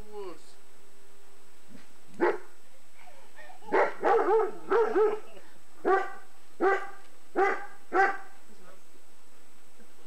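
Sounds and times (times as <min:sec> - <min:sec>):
dog barking: 0:02.2 - 0:02.5, 0:03.7 - 0:08.4.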